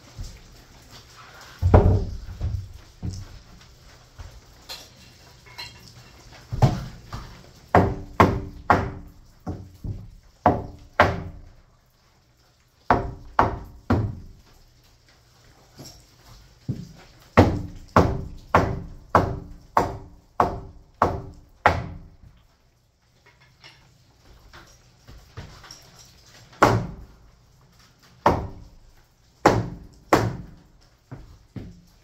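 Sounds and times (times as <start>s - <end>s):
hammer striking nails into wood: 7.7s - 9.6s, 17.4s - 22.1s, 26.6s - 27.0s, 28.3s - 28.7s, 29.4s - 30.5s.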